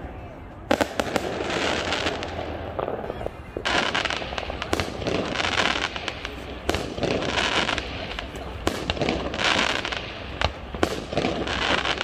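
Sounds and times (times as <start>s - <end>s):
fireworks crackling: 0.6s - 12.0s
fireworks bangs: 0.7s - 12.0s.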